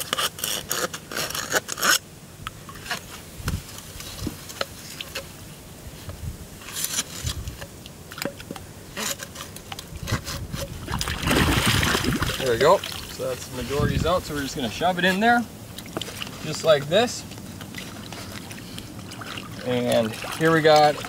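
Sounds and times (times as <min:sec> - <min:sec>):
pipe scraping in clay mud: 0:00.0 - 0:02.0, 0:02.7 - 0:21.0
metal rod scraping through pipe: 0:08.3 - 0:11.0.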